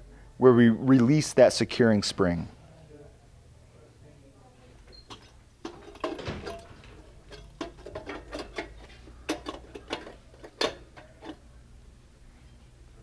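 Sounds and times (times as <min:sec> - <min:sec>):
metal clicks and knocks: 0:04.9 - 0:11.4.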